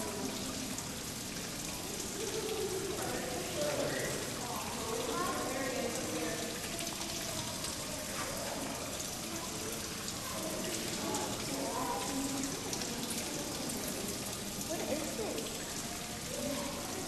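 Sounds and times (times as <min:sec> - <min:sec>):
faint distant voices: 0:00.0 - 0:17.0.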